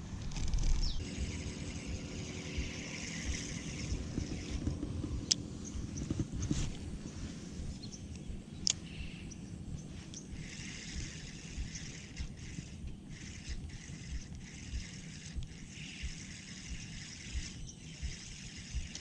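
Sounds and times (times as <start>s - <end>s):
birds chirping: 0.0s - 19.0s
wind rumble on microphone: 0.0s - 19.0s
sharp clicks: 2.6s - 6.8s, 8.0s - 8.9s, 10.0s - 19.0s.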